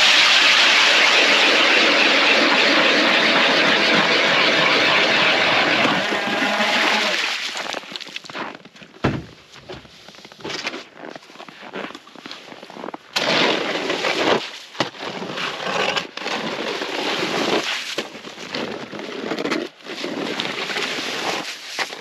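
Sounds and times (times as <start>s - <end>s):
shovel scraping slush on ice: 0.0s - 8.3s, 12.2s - 22.0s.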